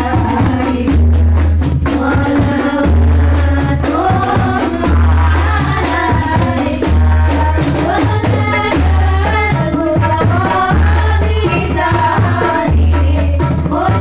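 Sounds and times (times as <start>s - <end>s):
frame drums playing: 0.0s - 14.0s
group singing: 0.0s - 14.0s.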